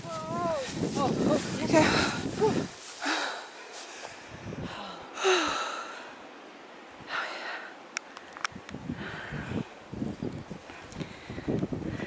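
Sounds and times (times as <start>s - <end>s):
person breathing hard: 1.8s - 6.2s, 8.9s - 9.7s.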